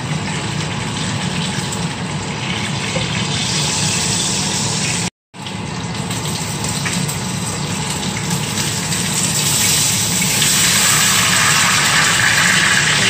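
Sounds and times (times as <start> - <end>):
chicken sizzling in hot oil: 0.0 - 13.0.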